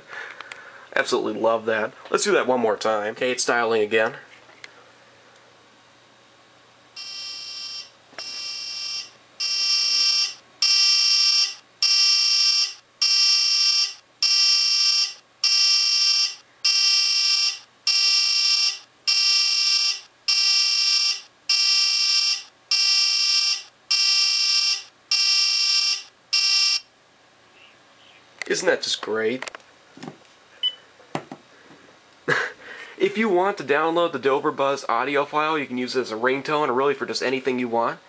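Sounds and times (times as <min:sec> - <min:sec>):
phone ringtone harsh buzzer: 0:07.0 - 0:26.9.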